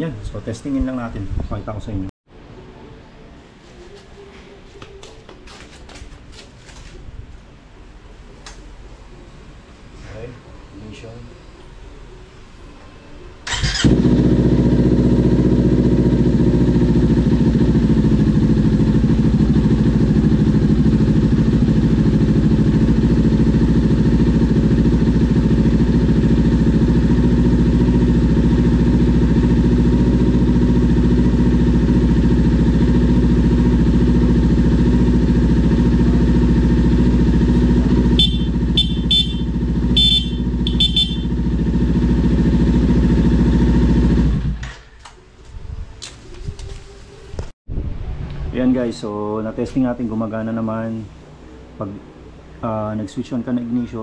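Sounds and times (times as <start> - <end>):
motorcycle engine starting: 13.4 - 44.9
motorcycle engine idling: 13.5 - 44.6
motorcycle horn toots: 37.1 - 42.6.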